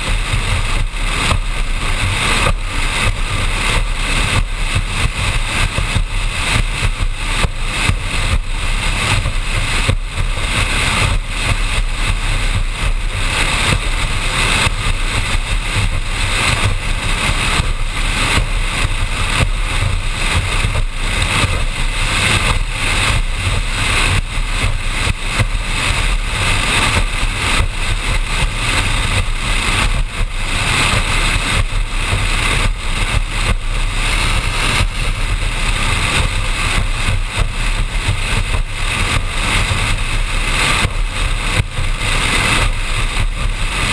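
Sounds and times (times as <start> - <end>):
powerboat engine drone: 0.0 - 43.9
wind buffeting microphone: 0.0 - 43.9.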